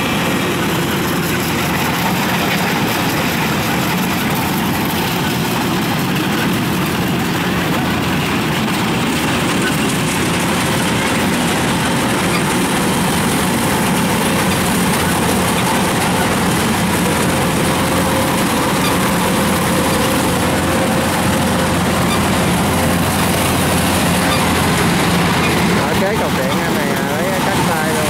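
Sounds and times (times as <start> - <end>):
harvester engine droning: 0.0 - 28.0.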